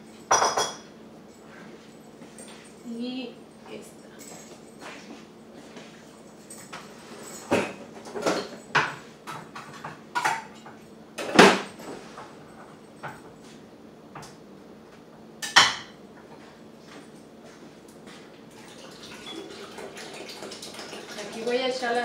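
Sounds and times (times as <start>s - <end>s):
dishes and utensils clattering: 0.3s - 0.8s, 6.6s - 13.2s, 18.9s - 22.0s.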